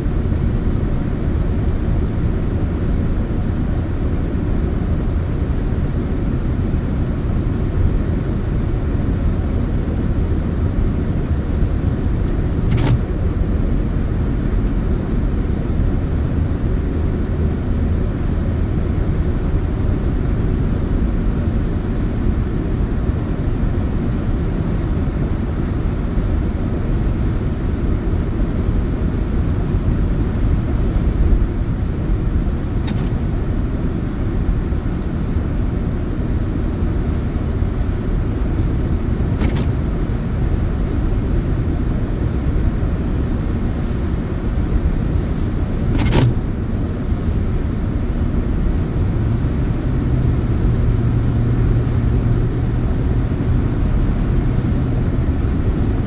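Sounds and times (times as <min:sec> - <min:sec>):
car driving on wet road: 0:07.5 - 0:20.9, 0:27.3 - 0:56.0
sharp click: 0:12.3 - 0:13.1, 0:32.4 - 0:33.2, 0:39.4 - 0:39.8, 0:45.9 - 0:46.4.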